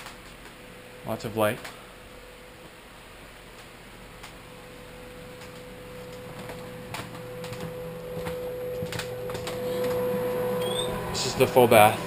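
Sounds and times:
steady hum with held tone: 0:00.0 - 0:12.0
footsteps knocking: 0:06.2 - 0:10.2.

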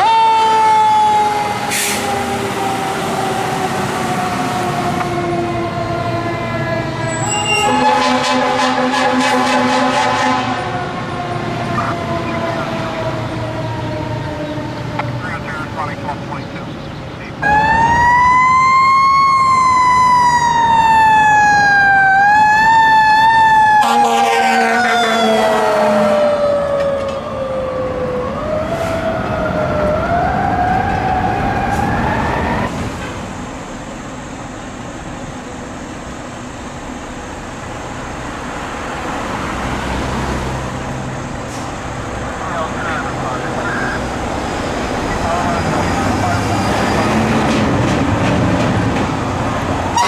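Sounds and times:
mechanical siren wailing: 0:00.0 - 0:14.8, 0:17.4 - 0:32.7
traffic and engine noise: 0:00.0 - 0:50.0
vehicle horn: 0:07.1 - 0:10.7, 0:23.8 - 0:26.1.

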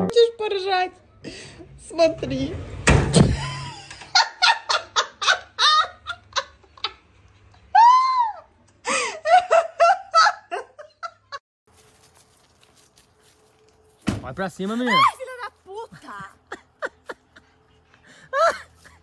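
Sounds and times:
thump: 0:02.8 - 0:03.4, 0:14.0 - 0:14.3
person squealing: 0:14.8 - 0:15.2
person laughing hard: 0:18.3 - 0:19.0.

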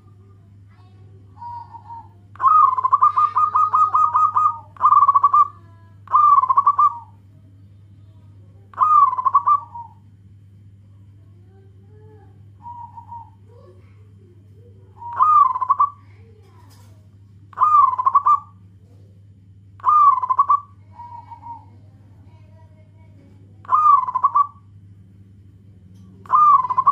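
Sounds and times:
steady low hum: 0:00.0 - 0:26.9
dove cooing: 0:01.3 - 0:07.2, 0:08.7 - 0:10.0, 0:11.9 - 0:16.9, 0:17.5 - 0:19.1, 0:19.8 - 0:22.8, 0:23.6 - 0:24.7, 0:26.1 - 0:26.9.

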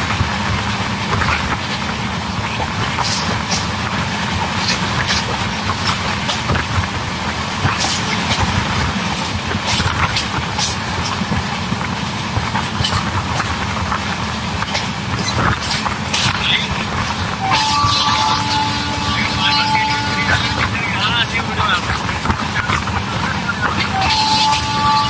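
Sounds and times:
train wheels rumbling on track: 0:00.0 - 0:25.0.

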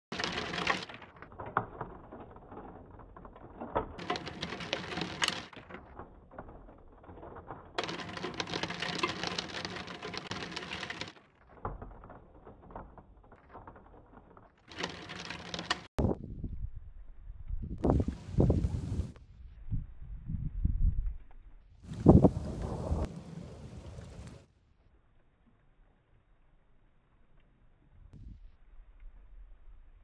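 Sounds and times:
rain pattering: 0:00.1 - 0:16.0, 0:21.9 - 0:24.5.

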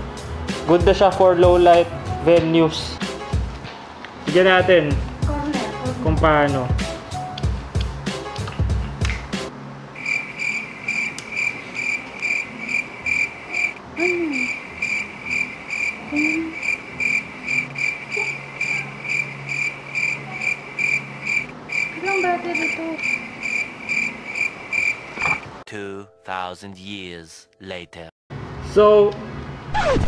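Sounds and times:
crickets chirping: 0:10.0 - 0:25.5.

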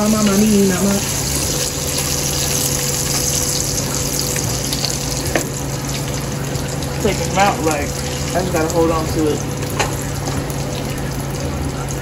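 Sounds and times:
sausage sizzling in hot fat: 0:00.0 - 0:12.0.

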